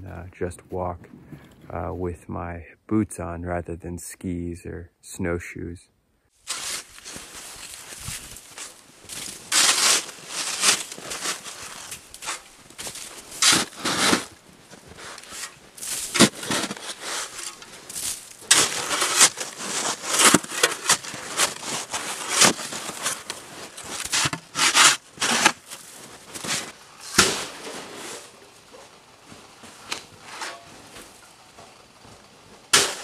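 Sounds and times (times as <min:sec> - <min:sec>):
snow shovel scraping snow: 0:06.4 - 0:31.2, 0:32.7 - 0:33.0.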